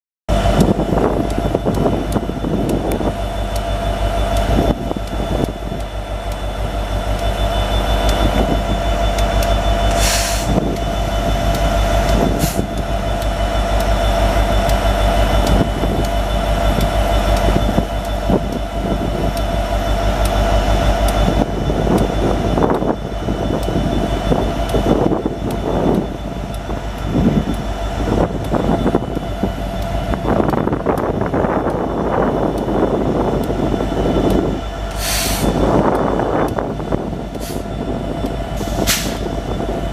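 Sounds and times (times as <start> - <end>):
diesel locomotive engine drone: 0.3 - 39.9
steady whine: 0.3 - 39.9
brief hiss: 9.9 - 10.5.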